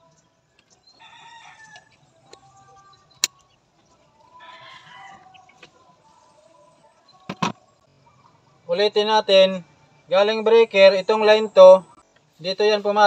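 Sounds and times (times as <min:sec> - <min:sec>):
chicken calling: 0:04.1 - 0:06.3.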